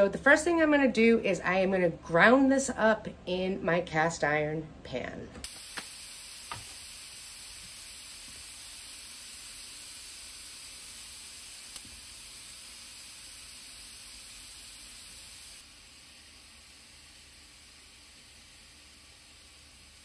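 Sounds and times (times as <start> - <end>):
meat sizzling in a skillet: 5.5 - 20.0.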